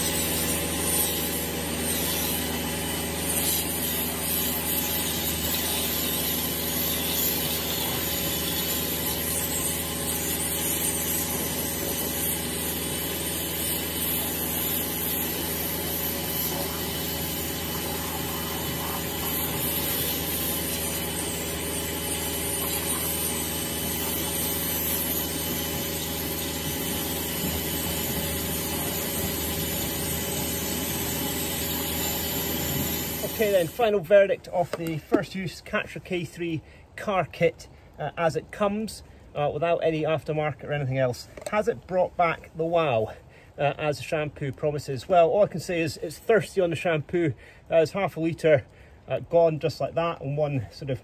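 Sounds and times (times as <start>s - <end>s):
pressure washer motor humming: 0.0s - 36.1s
water jet spraying on car: 0.0s - 36.1s.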